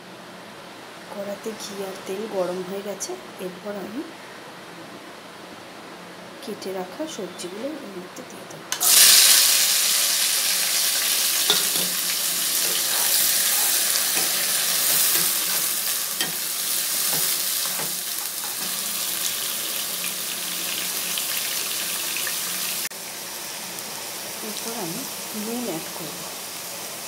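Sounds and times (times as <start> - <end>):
vegetables sizzling in oil: 8.7 - 27.0.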